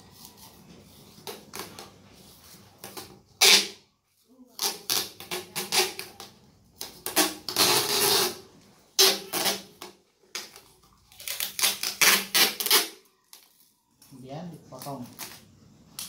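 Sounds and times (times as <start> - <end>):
packing tape pulled off roll: 2.8 - 3.8, 4.6 - 8.4, 9.0 - 13.5.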